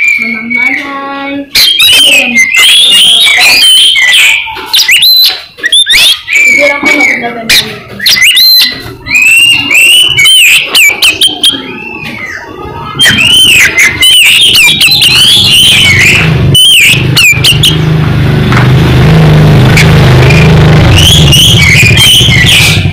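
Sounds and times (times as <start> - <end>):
bird singing whistled phrases: 0.0 - 17.8, 21.0 - 22.8
vehicle engine droning: 11.0 - 22.9.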